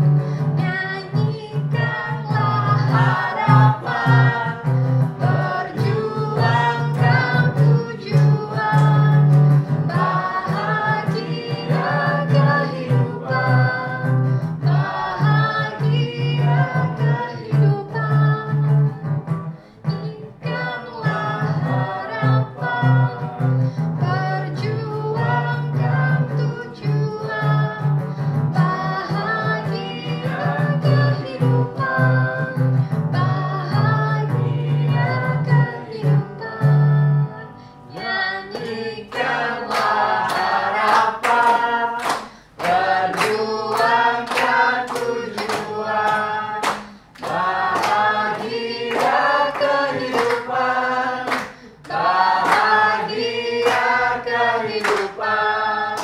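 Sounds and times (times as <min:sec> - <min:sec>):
hands clapping a beat: 0:00.0 - 0:36.8, 0:37.9 - 0:56.0
acoustic guitar: 0:00.0 - 0:56.0
group singing folk song: 0:00.0 - 0:56.0.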